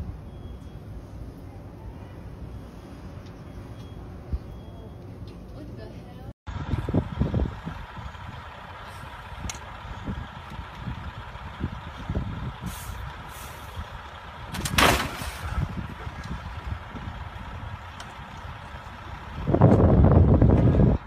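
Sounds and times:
heavy truck rumbling: 0.0s - 21.0s
wind buffeting microphone: 6.5s - 21.0s.

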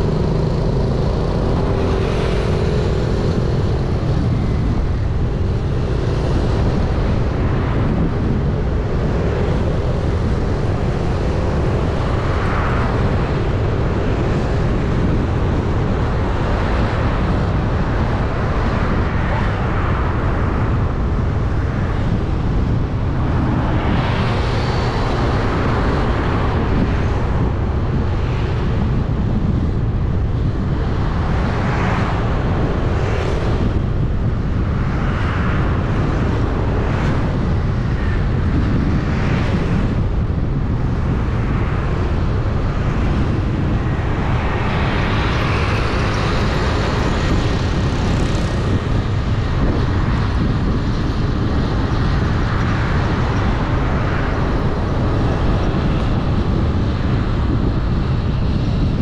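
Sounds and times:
vehicle road noise: 0.0s - 59.0s
wind rumble on microphone: 0.0s - 59.0s.

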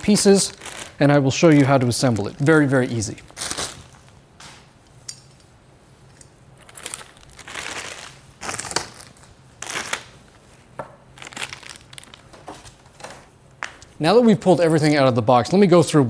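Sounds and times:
plastic bags crinkling: 0.0s - 4.2s, 6.6s - 10.4s, 11.1s - 13.2s.

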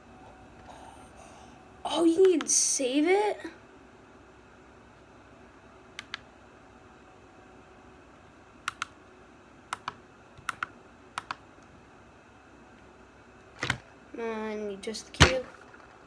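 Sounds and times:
sharp plastic clicks: 8.6s - 9.0s.

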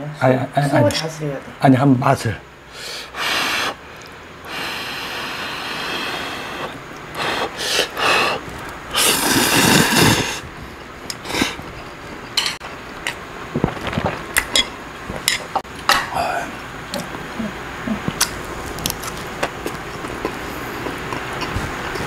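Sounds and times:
man slurping noodles: 2.8s - 3.8s, 4.5s - 10.5s, 11.1s - 11.9s
chewing: 18.0s - 22.0s.

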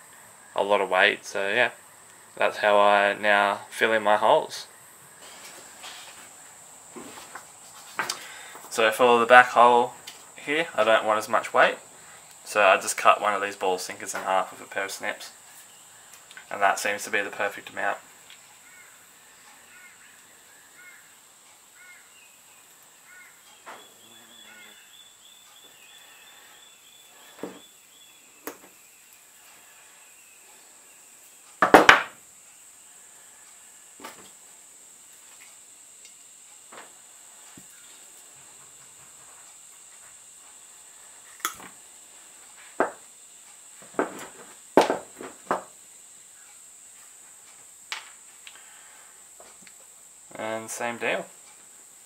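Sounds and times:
faint high-pitched hiss: 0.0s - 52.0s
thin steady high tone: 8.3s - 31.6s
faint bird chirps: 18.6s - 31.5s.

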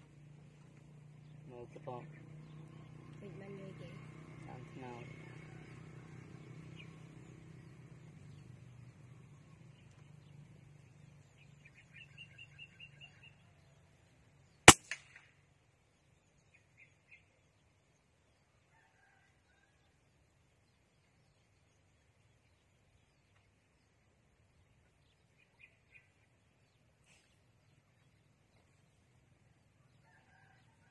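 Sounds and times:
bird chirping: 0.0s - 14.7s, 15.8s - 18.6s, 20.6s - 30.6s
rifle shot with echoes: 14.7s - 15.3s.

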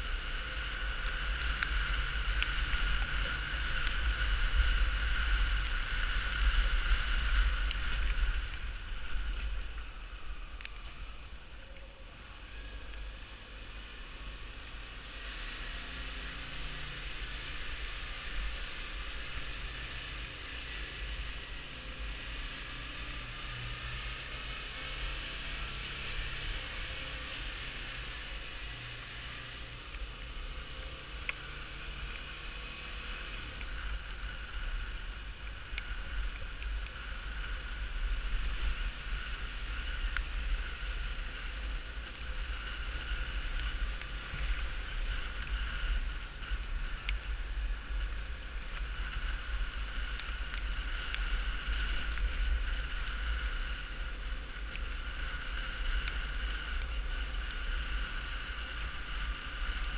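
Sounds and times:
faint ticks: 0.1s - 13.6s, 28.2s - 59.9s.

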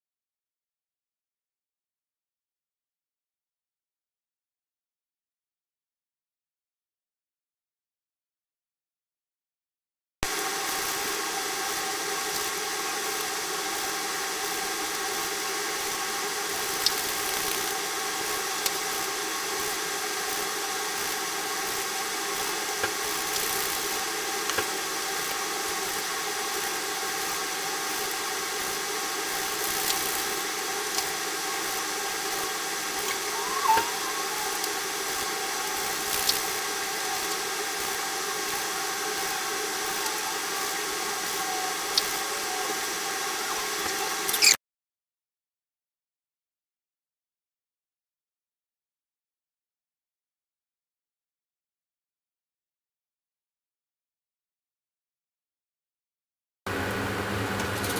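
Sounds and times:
mechanical hum and hiss: 10.2s - 44.6s, 56.7s - 57.9s
chirp-like pitch glide: 33.0s - 34.8s.

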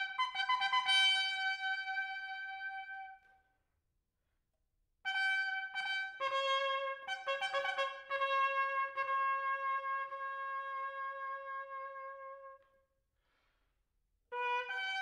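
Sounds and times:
solo trumpet fanfare: 0.0s - 3.2s, 5.1s - 12.7s, 14.3s - 15.0s.

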